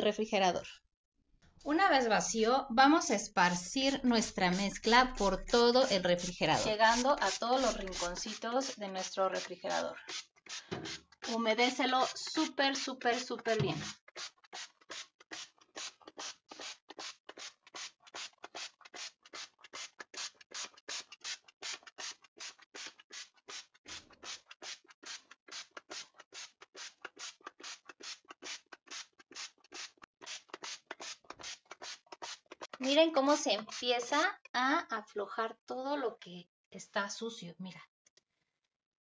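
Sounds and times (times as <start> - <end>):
spray bottle squirting: 3.8 - 34.2.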